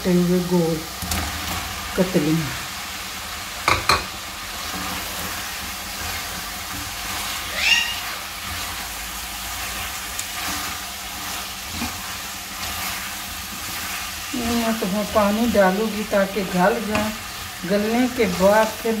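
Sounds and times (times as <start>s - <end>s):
potatoes sizzling in a pot: 0.0s - 19.0s
spatula stirring: 3.6s - 18.7s.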